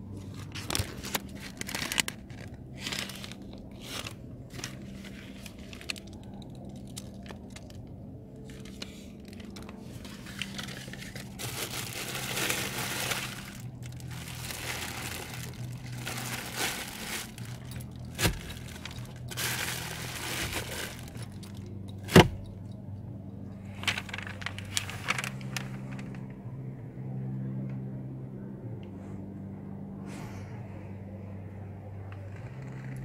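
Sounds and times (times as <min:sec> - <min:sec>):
plastic wrapping crinkling: 0:00.2 - 0:07.8, 0:08.4 - 0:22.5, 0:23.8 - 0:26.2.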